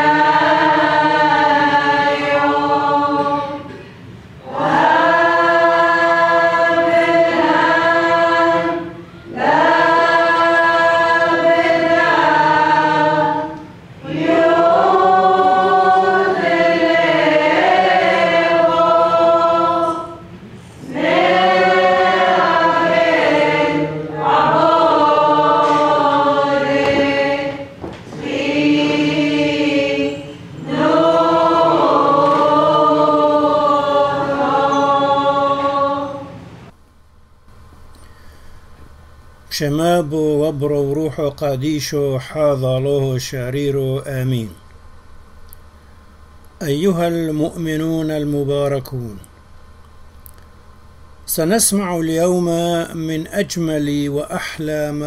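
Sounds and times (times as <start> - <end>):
choir singing a hymn: 0.0 - 36.7.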